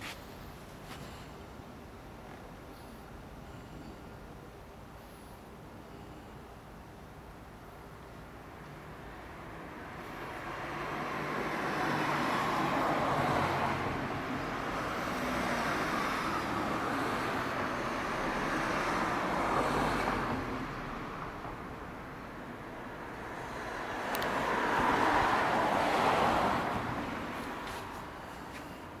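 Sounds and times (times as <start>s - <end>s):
road traffic passing: 7.1s - 29.0s.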